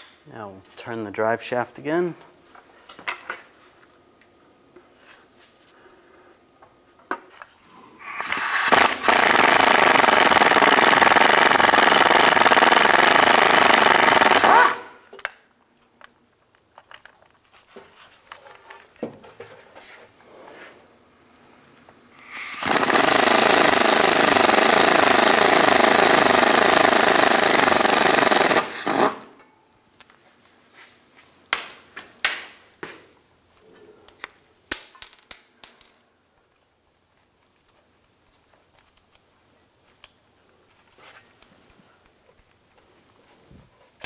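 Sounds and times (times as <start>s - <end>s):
pneumatic impact wrench hammering: 8.0s - 15.0s, 22.2s - 29.4s.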